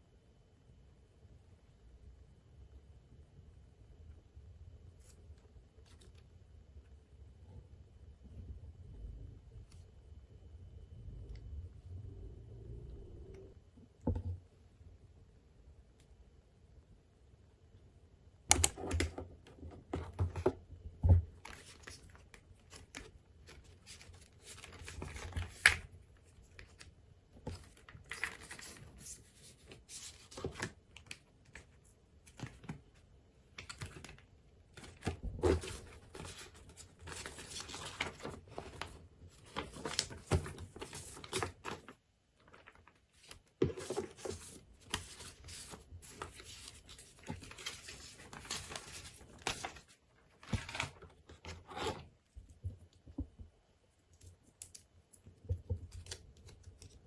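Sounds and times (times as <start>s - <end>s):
sharp click: 18.5s - 18.8s
taps and clicks handling a box: 18.5s - 19.1s
paper rustling: 34.8s - 52.0s.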